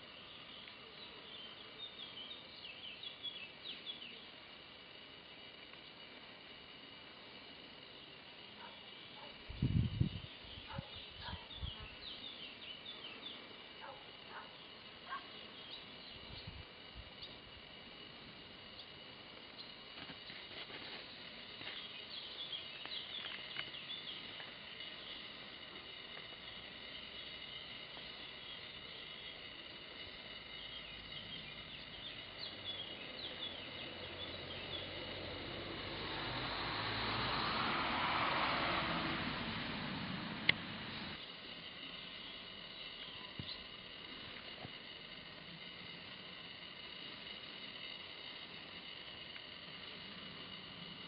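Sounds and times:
small birds chirping: 0.0s - 51.0s
steady high-pitched whine: 0.0s - 51.0s
passing vehicle: 34.0s - 41.2s.

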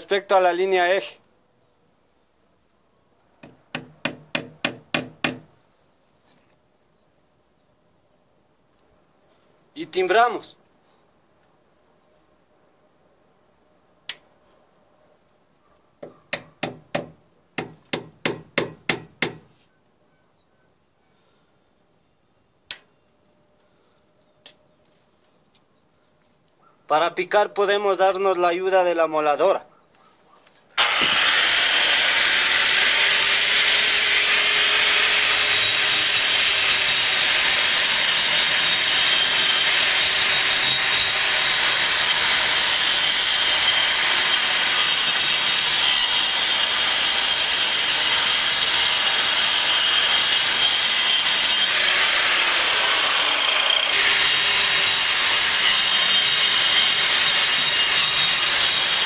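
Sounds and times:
angle grinder cutting concrete: 30.8s - 59.0s.

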